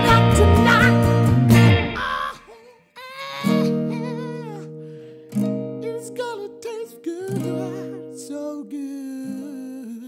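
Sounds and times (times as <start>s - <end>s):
bass guitar: 0.0s - 2.3s
acoustic guitar strumming: 0.0s - 2.4s, 3.2s - 10.0s
man singing wordless vibrato: 0.0s - 5.0s, 5.8s - 10.0s.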